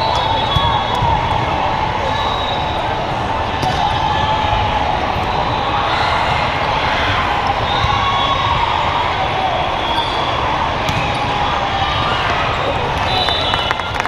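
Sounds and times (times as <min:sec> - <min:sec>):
many voices: 0:00.0 - 0:14.0
volleyballs hit and bouncing: 0:03.5 - 0:04.2, 0:10.7 - 0:11.6, 0:12.2 - 0:14.0.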